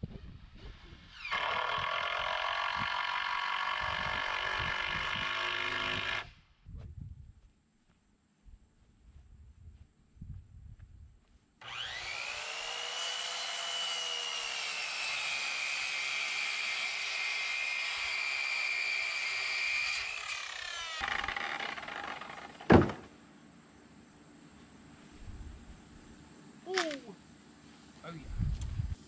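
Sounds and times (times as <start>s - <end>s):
power tool running: 1.1s - 6.3s, 11.6s - 22.6s.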